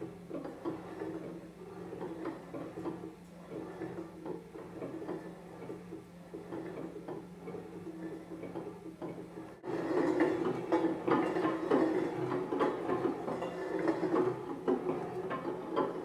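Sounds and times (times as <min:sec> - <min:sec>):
lids spinning and rattling on wood: 0:09.4 - 0:16.0.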